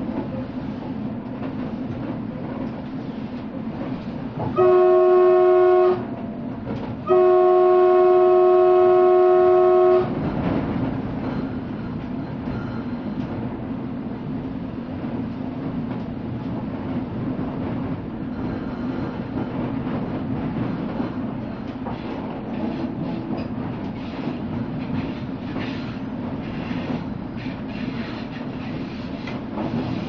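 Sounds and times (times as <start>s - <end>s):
train running rumble: 0.0s - 30.0s
train horn blasts: 4.5s - 6.1s, 7.0s - 10.2s.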